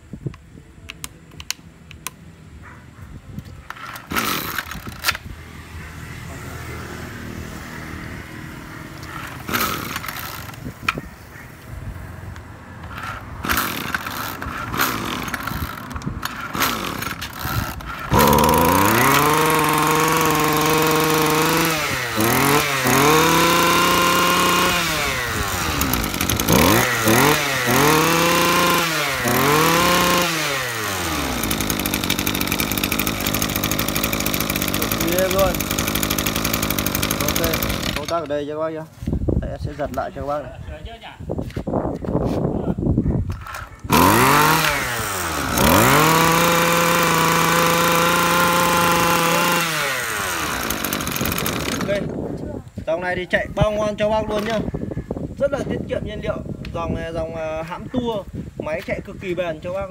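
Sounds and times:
brush cutter engine pull-starting: 0:03.6 - 0:05.3, 0:08.9 - 0:11.0, 0:12.8 - 0:38.6, 0:43.3 - 0:52.2, 0:54.2 - 0:54.6
brush cutter engine revving: 0:03.7 - 0:05.3, 0:08.6 - 0:11.0, 0:12.4 - 0:38.5, 0:43.4 - 0:52.3.

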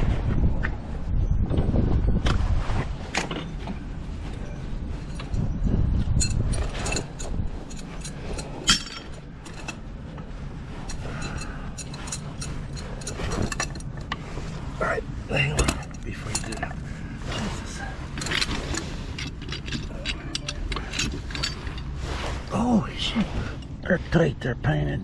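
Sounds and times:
metal hardware clinking: 0:06.1 - 0:09.8, 0:10.8 - 0:14.2, 0:15.4 - 0:16.8, 0:18.1 - 0:22.0.

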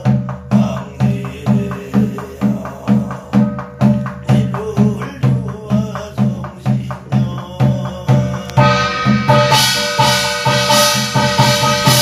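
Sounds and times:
man chanting: 0:00.0 - 0:09.5
barrel drum beating: 0:00.0 - 0:12.0.

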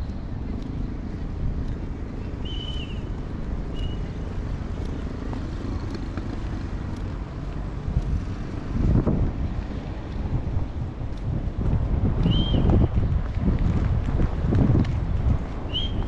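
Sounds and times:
background traffic: 0:00.0 - 0:16.0
wind rumbling on microphone: 0:00.0 - 0:16.0.

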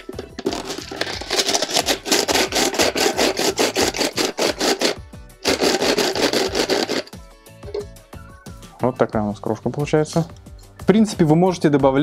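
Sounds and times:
bait crusher grinding pellets: 0:00.0 - 0:07.2.

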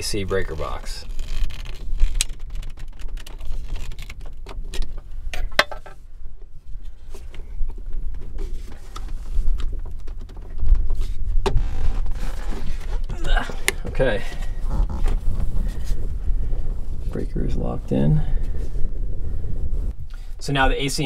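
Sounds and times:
steady low rumble: 0:12.8 - 0:21.0.

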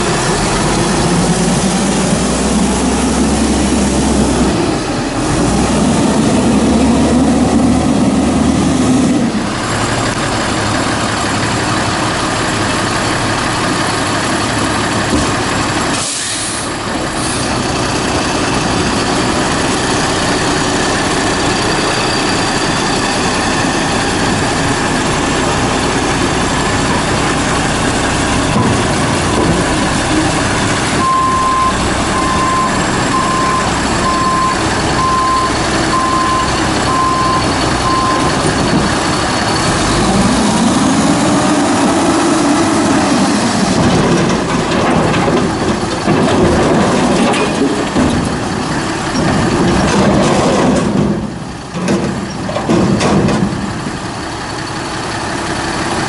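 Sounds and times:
garbage truck diesel engine running: 0:00.0 - 0:56.0
air brakes hissing: 0:15.9 - 0:17.6
backup alarm beeping: 0:31.0 - 0:38.4.

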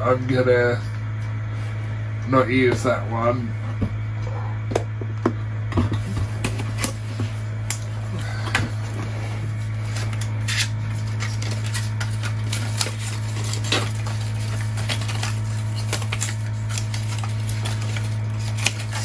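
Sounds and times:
steady low hum: 0:00.0 - 0:19.0
packaging rustling: 0:06.0 - 0:19.0.

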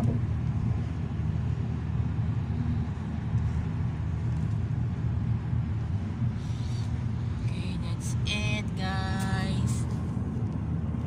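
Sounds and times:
car road noise from inside: 0:00.0 - 0:11.0.

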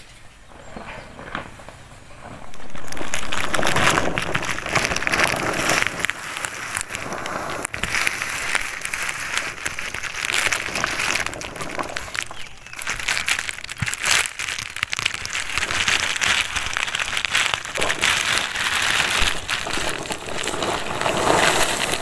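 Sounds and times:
plastic tarpaulin rustling and crinkling: 0:00.0 - 0:22.0.

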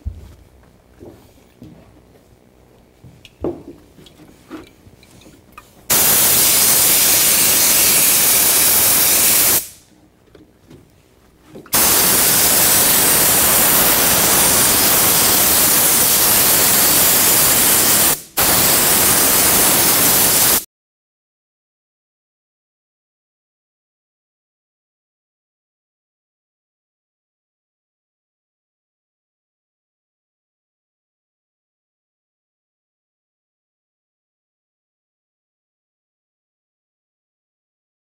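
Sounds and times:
spray gun hissing: 0:05.9 - 0:09.8, 0:11.7 - 0:20.7.

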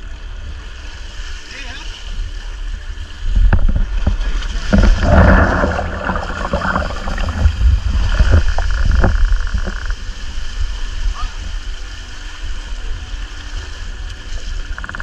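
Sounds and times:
sea wave washing over rocks: 0:03.4 - 0:09.7
water splashing off rocks: 0:03.5 - 0:09.8.

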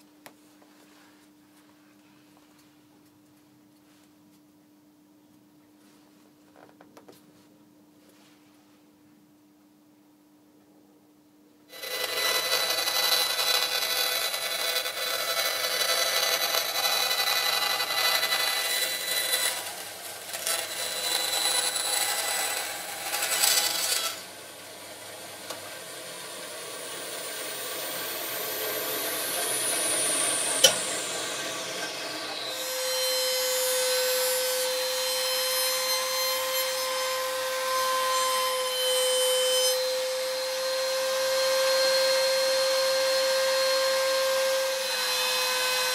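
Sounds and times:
router high-pitched hum: 0:11.7 - 0:37.6
band saw cutting plastic: 0:11.7 - 0:40.6
falling whine: 0:24.2 - 0:33.1.

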